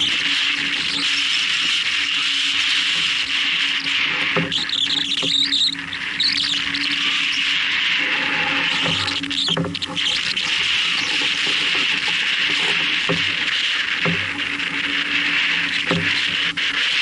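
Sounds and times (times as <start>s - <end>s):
water splashing along hull: 0.0s - 17.0s
wind: 0.0s - 17.0s.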